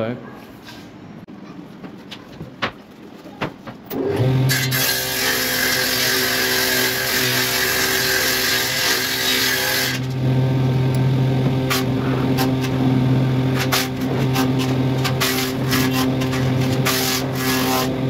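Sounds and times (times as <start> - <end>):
saw blade cutting wood: 4.0 - 10.2, 11.5 - 18.0
table saw motor humming: 4.0 - 18.0.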